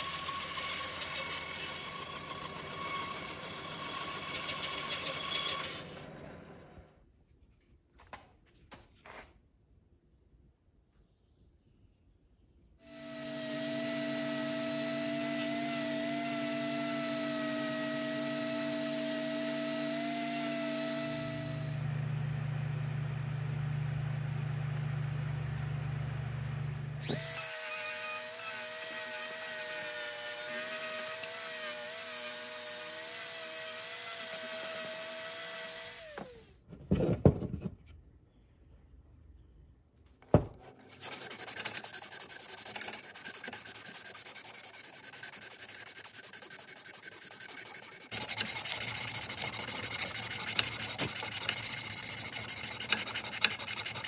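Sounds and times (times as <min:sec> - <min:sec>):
power tool whining: 0:00.0 - 0:07.0, 0:12.8 - 0:23.6, 0:26.5 - 0:36.6, 0:47.4 - 0:54.0
wood abraded by hand: 0:40.2 - 0:54.0
sanding strip rubbing wood: 0:40.6 - 0:54.0.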